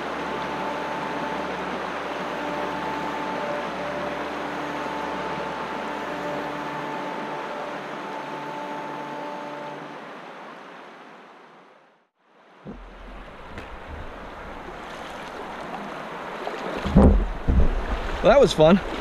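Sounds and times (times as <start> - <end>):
water rushing over rocks: 0.0 - 11.5, 12.5 - 19.0
wind rumble on microphone: 16.7 - 19.0.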